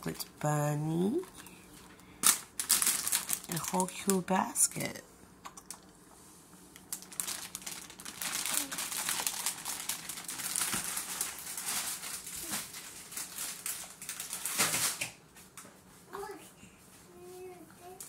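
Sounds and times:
plastic packaging crinkling: 1.2 - 4.3, 6.7 - 15.2.

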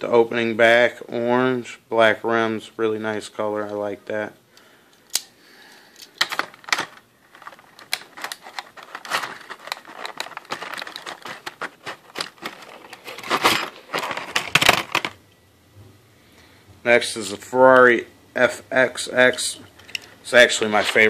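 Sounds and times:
plastic tray crinkling and clicking: 6.1 - 15.2.

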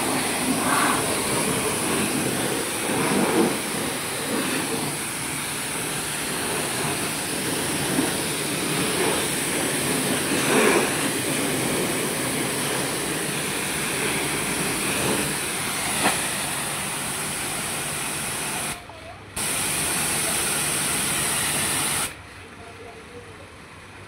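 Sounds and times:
water jet hissing: 0.0 - 18.8, 19.4 - 22.2
pressure washer pump running: 0.0 - 22.2.

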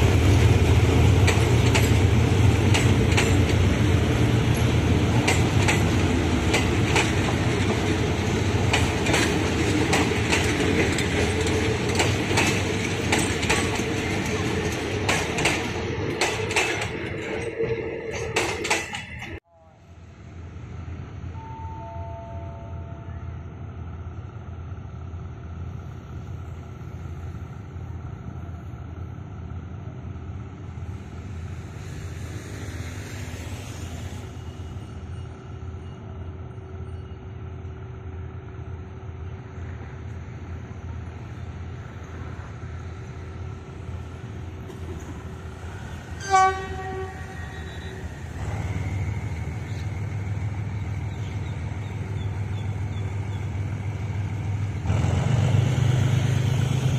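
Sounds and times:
locomotive engine droning: 0.0 - 56.9
train horn blast: 21.4 - 23.2, 46.1 - 48.4.

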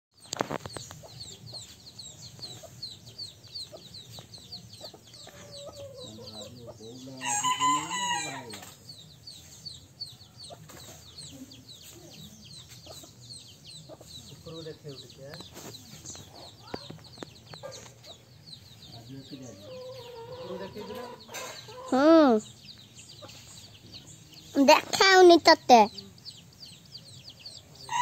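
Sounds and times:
rooster crowing: 7.1 - 8.6.

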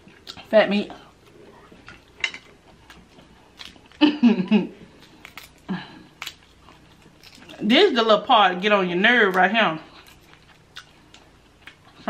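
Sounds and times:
crab shell cracking: 5.0 - 7.6.

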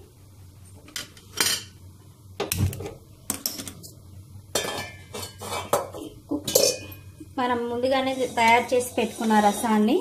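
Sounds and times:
metal pots and utensils clinking: 4.5 - 7.2.

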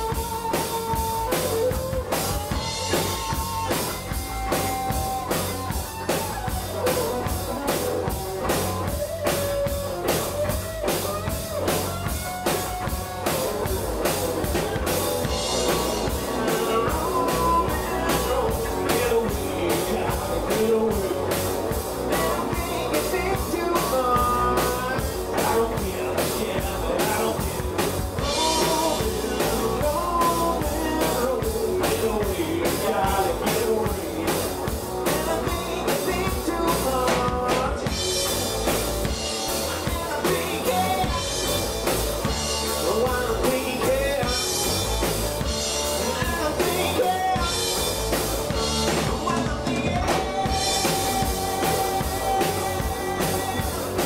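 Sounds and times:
drum kit steady beat: 0.0 - 54.0
electric guitars: 0.0 - 54.0
lead vocalist singing: 14.4 - 38.4, 39.5 - 45.0, 45.8 - 54.0.

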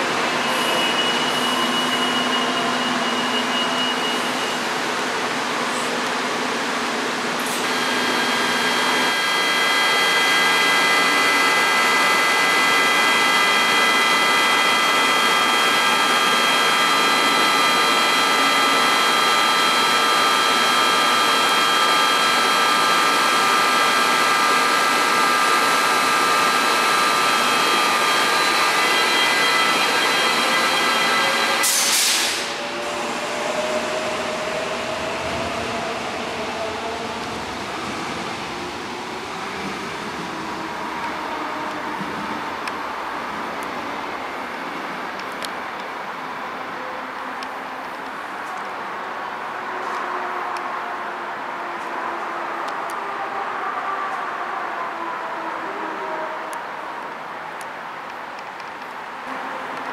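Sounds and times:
train equipment high-pitched whine: 0.0 - 59.9
train motor whine rising: 6.0 - 46.6.

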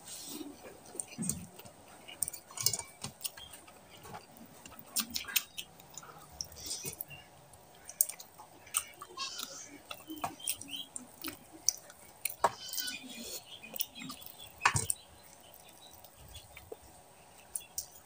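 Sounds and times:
wet chewing and lip-smacking: 0.5 - 18.0.

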